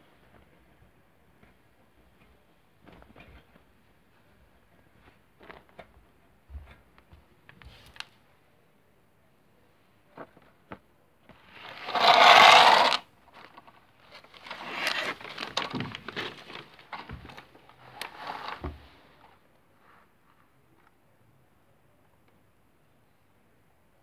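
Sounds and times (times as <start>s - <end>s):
paper rustling and crackling: 11.5s - 18.8s.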